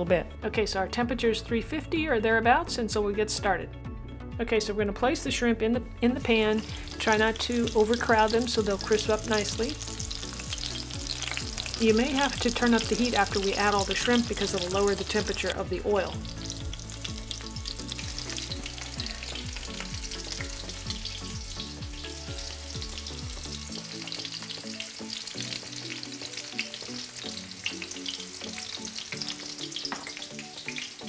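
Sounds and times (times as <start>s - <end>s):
shrimp sizzling in oil: 6.4s - 31.0s.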